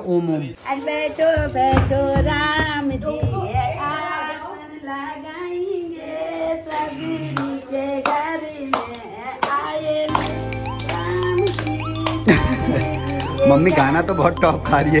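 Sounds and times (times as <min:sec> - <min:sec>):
woman singing: 0:00.6 - 0:15.0
people clapping in time: 0:07.3 - 0:14.7.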